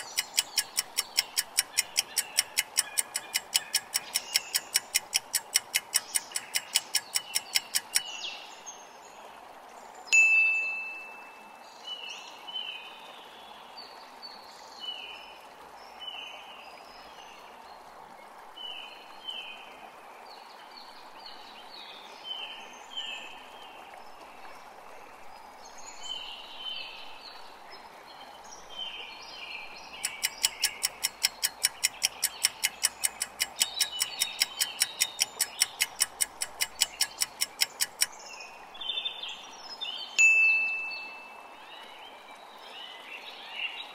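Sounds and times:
countdown timer ticking: 0:00.0 - 0:08.0, 0:30.1 - 0:38.1
bright ding: 0:10.2 - 0:11.2, 0:40.2 - 0:41.3.

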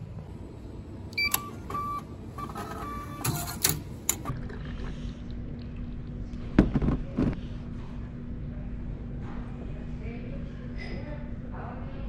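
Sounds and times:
vending machine short beeps: 0:01.2 - 0:04.2
ticket machine clacking and printing: 0:01.2 - 0:04.3.

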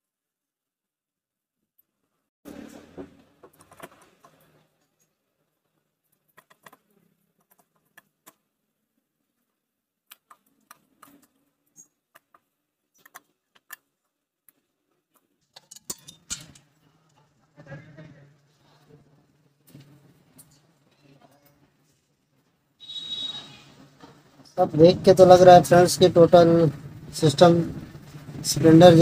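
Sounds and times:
small metal parts clinking: 0:15.5 - 0:16.7.

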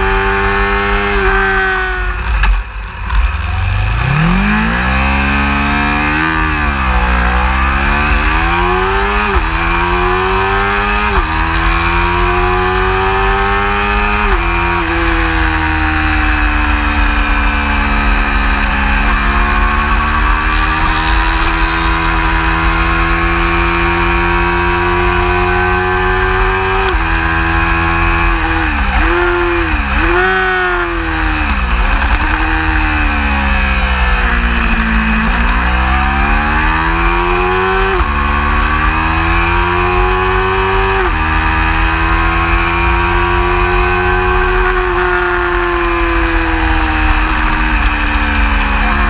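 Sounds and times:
race motorcycle engine accelerating: 0:00.0 - 0:49.0.

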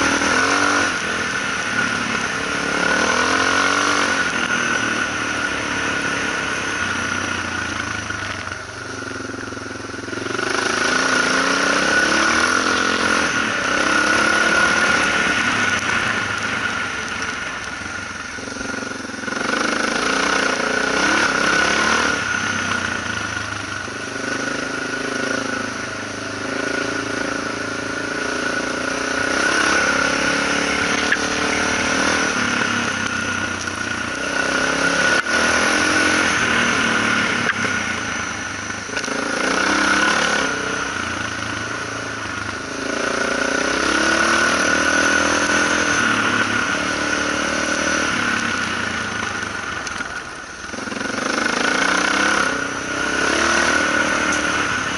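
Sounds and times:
motorcycle engine riding: 0:00.0 - 0:54.9.

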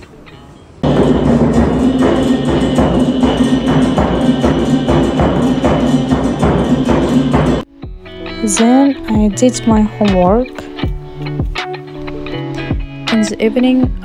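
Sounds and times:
percussion beat: 0:00.8 - 0:12.0.

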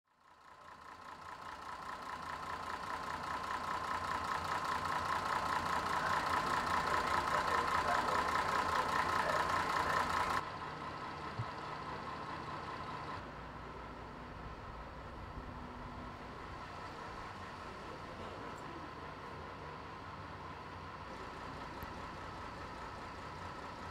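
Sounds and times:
diesel train engine idling: 0:00.1 - 0:23.9.

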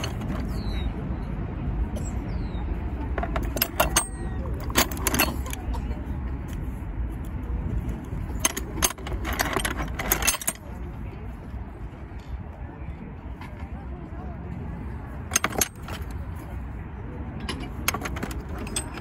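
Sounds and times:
metallic clinking: 0:03.2 - 0:05.7, 0:08.2 - 0:10.8, 0:15.3 - 0:16.2, 0:17.4 - 0:19.0.

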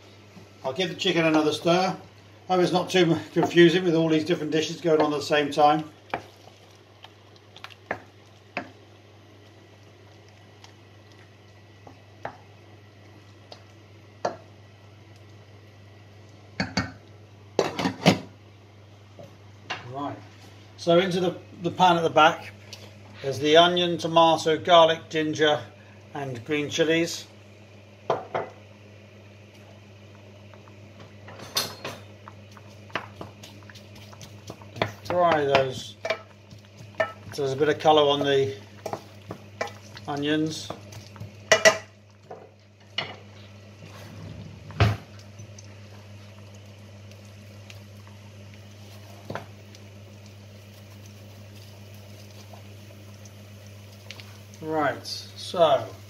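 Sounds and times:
steady low hum: 0:00.0 - 0:56.0
wooden spatula stirring in pan: 0:04.9 - 0:08.8, 0:32.3 - 0:54.6.

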